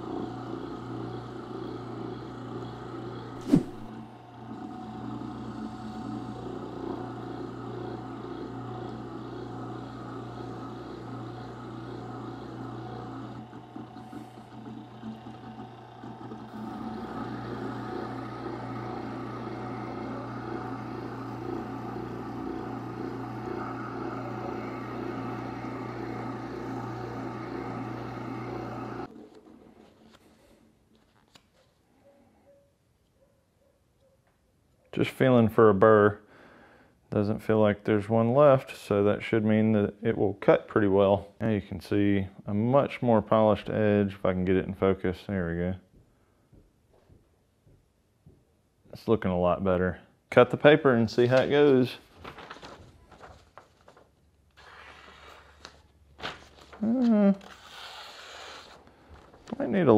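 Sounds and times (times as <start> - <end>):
sharpener motor humming: 0.0 - 29.5, 56.8 - 59.7
knife honed on leather wheel: 3.4 - 3.9.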